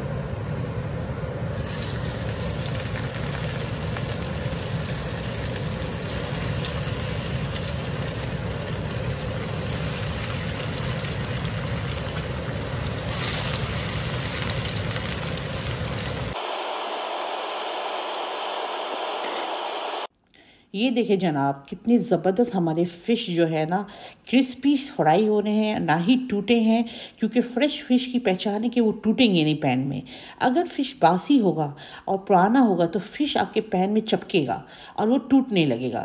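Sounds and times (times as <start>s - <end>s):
low hum: 0.0s - 16.4s
fish sizzling in hot oil: 1.6s - 16.6s.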